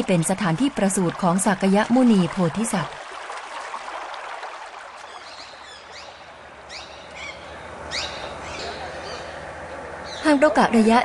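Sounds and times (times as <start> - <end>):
running water hiss: 0.0 - 9.2
small birds chirping: 5.0 - 10.5.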